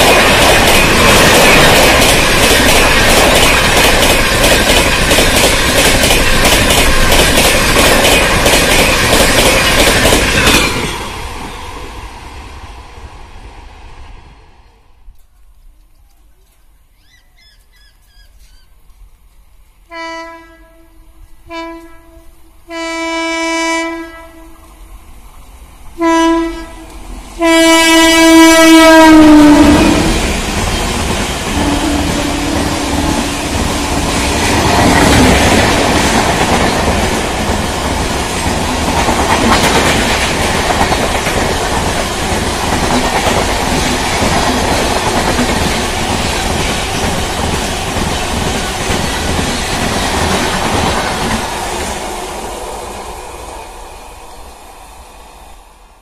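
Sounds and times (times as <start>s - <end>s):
train coaches rumbling past: 0.0s - 16.3s, 18.4s - 56.0s
locomotive horn blasts: 19.9s - 24.6s, 26.0s - 30.0s, 31.6s - 34.0s.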